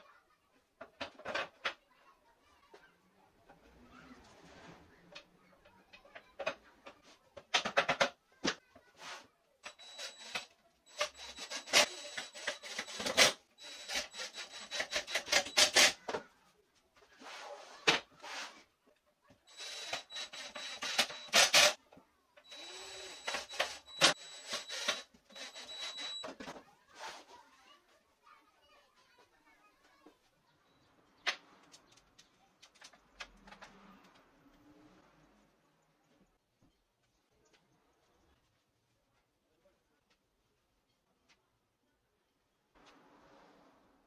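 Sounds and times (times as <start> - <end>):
impact driver whining and rattling: 9.7 - 16.1, 19.5 - 21.8, 22.4 - 26.4.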